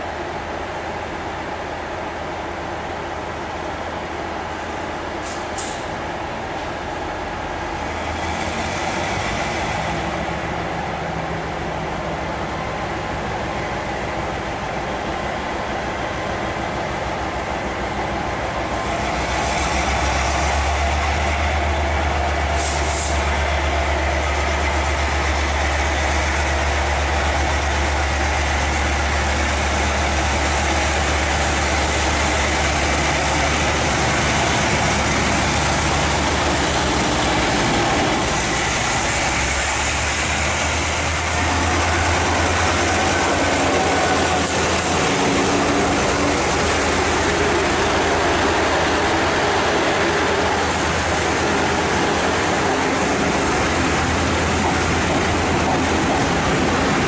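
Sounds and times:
locomotive engine hum: 0.0s - 57.0s.

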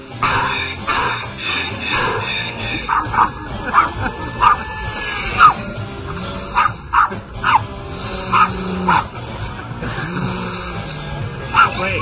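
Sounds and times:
background music: 0.0s - 12.0s
small dog barking: 6.6s - 7.6s, 11.5s - 11.8s.

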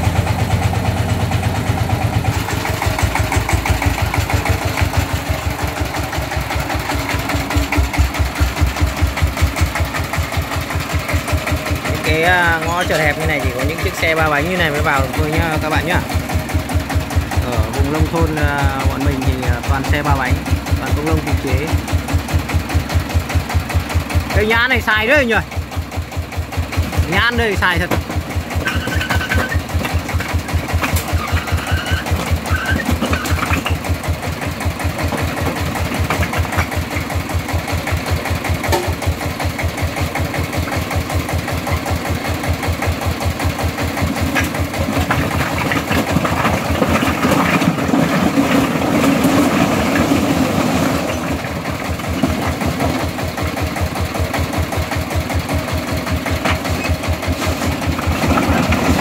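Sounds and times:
diesel engine thudding: 0.0s - 59.0s
bricks sliding and knocking: 28.0s - 33.9s, 34.9s - 37.1s, 44.1s - 51.5s, 56.3s - 59.0s.

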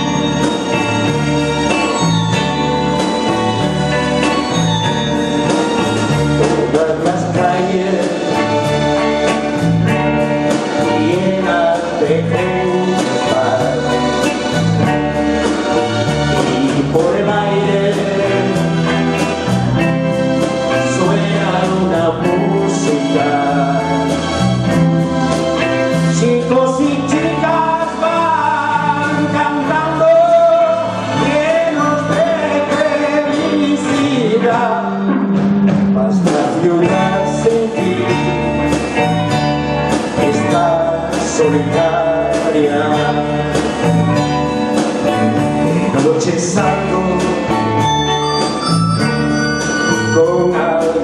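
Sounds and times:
bass guitar: 0.0s - 51.0s
drums: 0.0s - 51.0s
electric guitar: 0.0s - 51.0s
keyboards: 0.0s - 51.0s
person singing: 5.6s - 9.6s, 10.5s - 14.6s, 16.4s - 19.4s, 20.6s - 24.4s, 25.8s - 39.2s, 40.0s - 44.2s, 44.9s - 48.4s, 49.9s - 51.0s.

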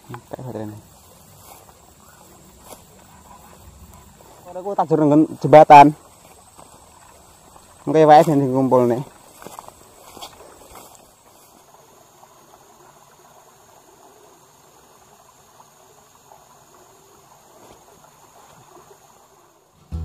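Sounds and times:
footsteps rustling through grass: 0.0s - 4.7s, 5.6s - 13.2s
low steady background hiss: 0.0s - 20.0s.

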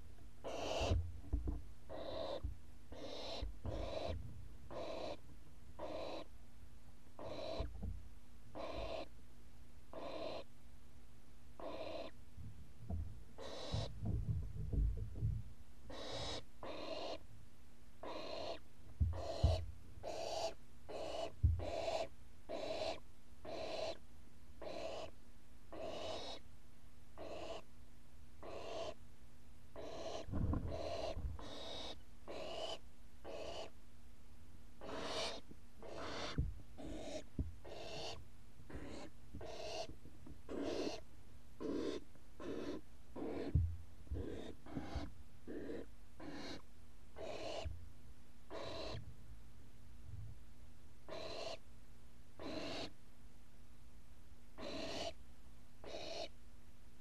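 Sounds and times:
owl chicks hissing calls: 0.4s - 1.0s, 1.9s - 5.2s, 5.8s - 6.3s, 7.2s - 7.7s, 8.5s - 9.1s, 9.9s - 10.5s, 11.6s - 12.2s, 13.4s - 14.0s, 15.9s - 17.3s, 18.0s - 24.0s, 24.6s - 26.4s, 27.2s - 27.7s, 28.4s - 29.0s, 29.8s - 33.8s, 34.8s - 47.7s, 48.5s - 49.1s, 51.1s - 51.6s, 52.4s - 53.0s, 54.6s - 55.2s, 55.8s - 56.4s
low thumps and bumps: 12.4s - 15.6s, 19.0s - 19.8s, 21.4s - 21.7s, 30.3s - 31.6s, 36.4s - 36.7s.

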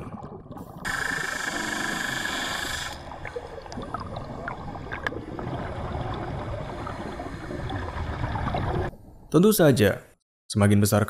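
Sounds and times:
bubbling pops and clicks: 0.0s - 1.0s, 3.1s - 6.8s
loud steady underwater hiss: 0.9s - 3.1s
low underwater rumbling: 3.0s - 9.3s.

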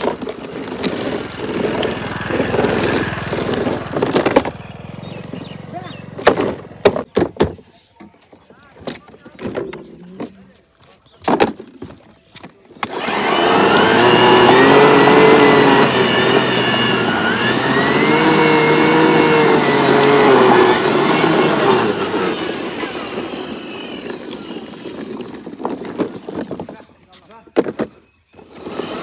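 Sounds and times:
engine revving: 0.0s - 7.0s, 12.8s - 26.0s, 28.4s - 29.0s.

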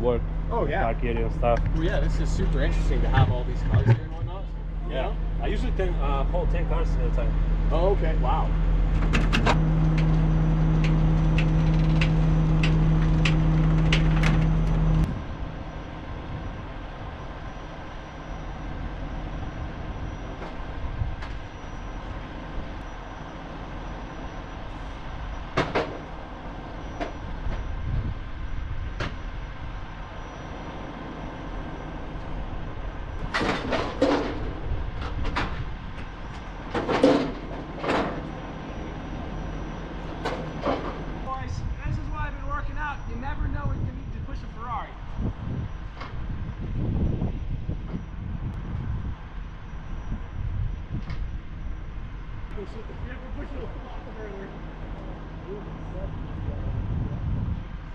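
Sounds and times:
hydraulic system humming: 0.0s - 57.9s
metal knocks and clanks: 36.7s - 38.3s.

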